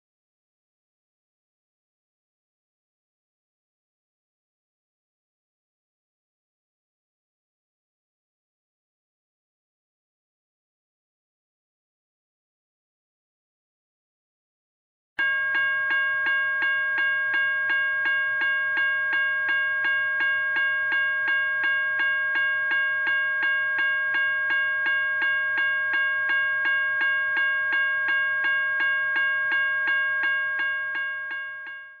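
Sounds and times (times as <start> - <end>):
railroad crossing bell: 15.2 - 32.0.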